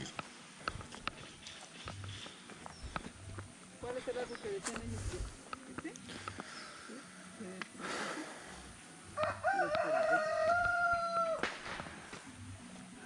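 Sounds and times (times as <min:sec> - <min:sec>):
rooster crowing: 0:09.1 - 0:11.5.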